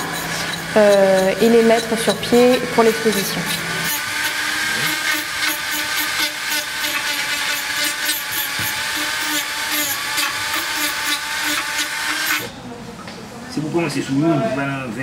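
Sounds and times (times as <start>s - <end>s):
rotary tool grinding: 0.0s - 12.5s.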